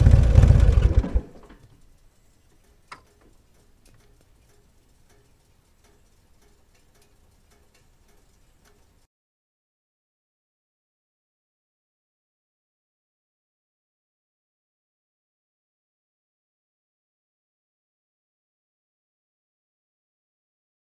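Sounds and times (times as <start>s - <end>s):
motorcycle engine running: 0.0s - 1.4s
faint regular ticking: 1.4s - 9.1s.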